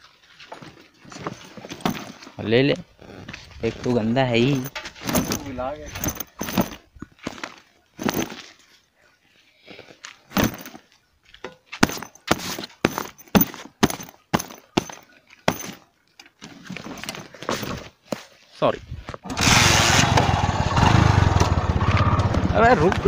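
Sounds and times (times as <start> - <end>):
backpack handling knocks and rustles: 0.6 - 2.4, 4.5 - 8.5, 10.3 - 10.8, 11.8 - 18.2.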